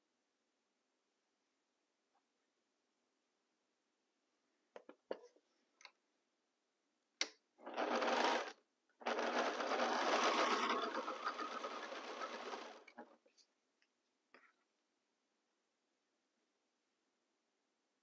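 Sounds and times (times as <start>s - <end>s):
sewing machine stitching: 7.6s - 13.2s.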